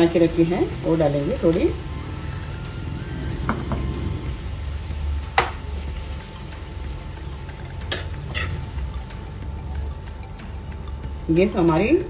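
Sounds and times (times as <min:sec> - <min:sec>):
low steady rumble: 0:00.0 - 0:12.0
spatula clinking against pan: 0:07.6 - 0:08.7.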